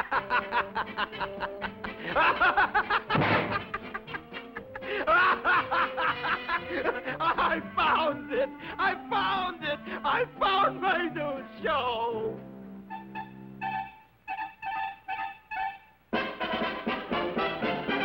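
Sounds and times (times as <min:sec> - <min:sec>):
cartoon character laughing: 0:00.0 - 0:08.4
orchestral cartoon music: 0:00.1 - 0:18.0.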